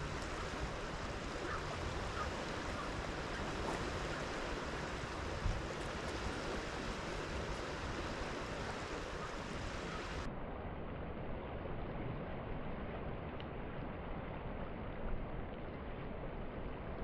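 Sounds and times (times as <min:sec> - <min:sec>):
sea washing against rocks: 0:00.0 - 0:10.3
wind on microphone: 0:00.0 - 0:10.3.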